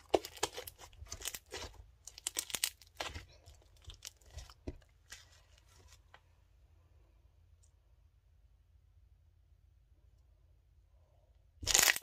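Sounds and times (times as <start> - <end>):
slime crackling and popping: 0.0 - 4.6, 11.6 - 12.0.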